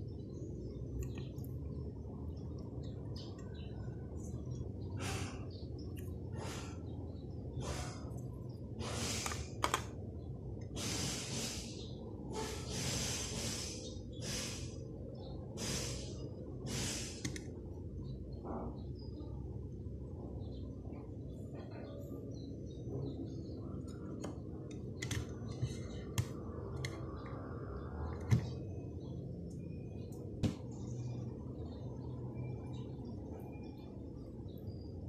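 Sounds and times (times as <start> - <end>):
steady low hum: 0.0 - 35.0
person breathing: 4.9 - 5.6, 6.3 - 7.0.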